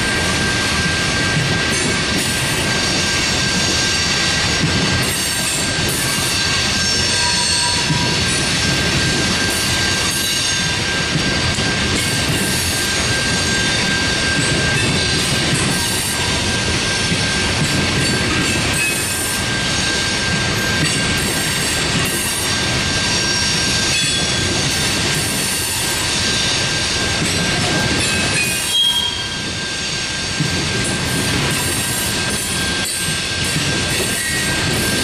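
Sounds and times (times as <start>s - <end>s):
train wheels rumbling on rail: 0.0s - 35.0s
high-pitched wheel squeal: 5.2s - 8.2s, 21.6s - 24.4s, 27.9s - 30.1s, 31.7s - 35.0s.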